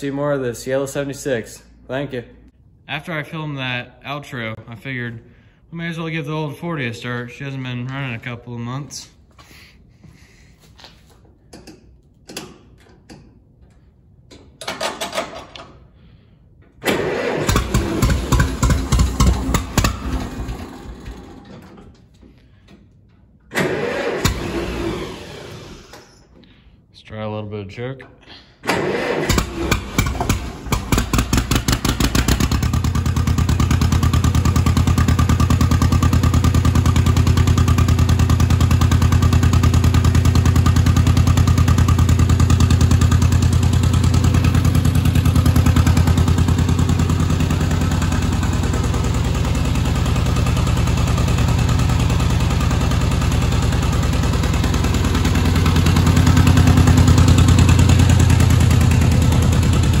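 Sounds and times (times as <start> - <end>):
tractor engine starting and idling: 11.4 - 26.4, 28.6 - 60.0.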